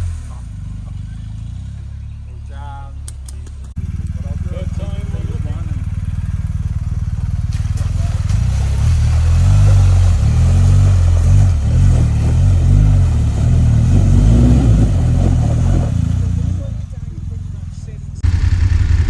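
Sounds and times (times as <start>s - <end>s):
water splashing around wheels: 0.0s - 2.3s, 3.6s - 19.0s
motorcycle engine revving: 0.0s - 19.0s.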